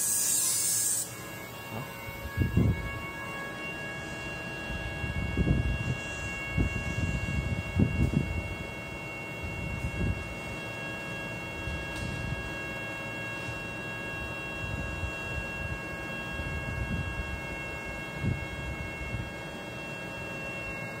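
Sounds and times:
vacuum pumps humming: 0.0 - 15.3
high-pitched whine tones: 0.0 - 21.0.

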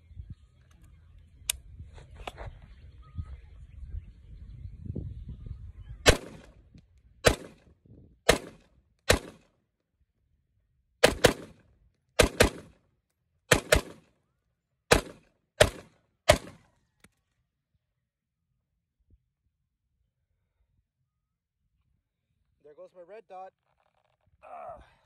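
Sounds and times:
pistol gunshots: 6.1 - 6.5, 7.2 - 7.6, 8.3 - 9.5, 11.0 - 11.6, 12.2 - 12.8, 13.5 - 14.1, 14.9 - 16.6.

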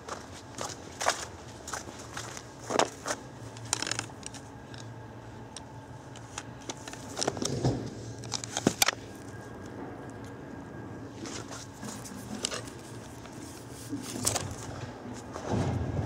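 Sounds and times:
footsteps crunching in snow: 0.0 - 3.3.

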